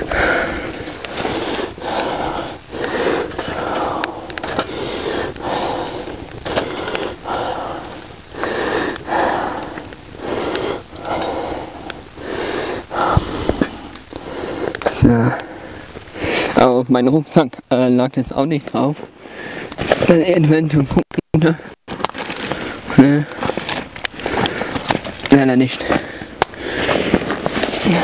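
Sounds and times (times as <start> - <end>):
man breathing hard: 0.0 - 16.6, 19.2 - 19.8, 22.4 - 25.0, 25.8 - 27.3.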